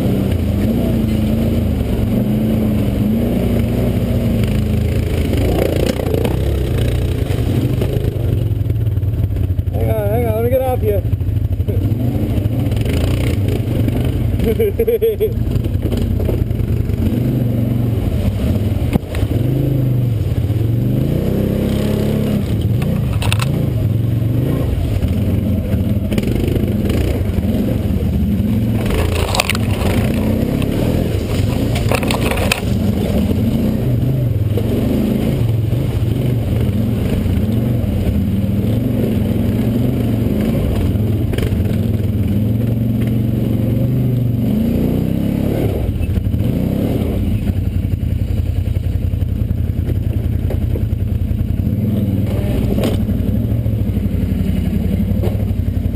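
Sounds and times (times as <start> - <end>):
quad bike engine at low revs: 0.0 - 55.9
brush snapping against vehicle: 22.5 - 23.6, 28.8 - 33.1.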